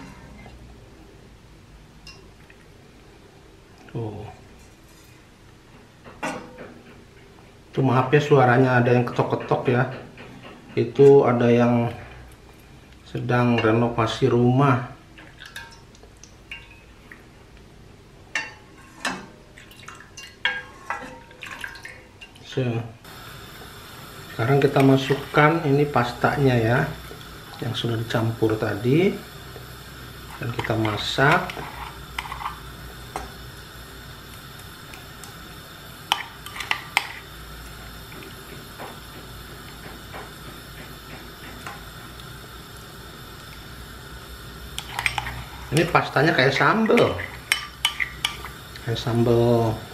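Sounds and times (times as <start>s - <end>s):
broth dripping into wok: 18.3s - 49.9s.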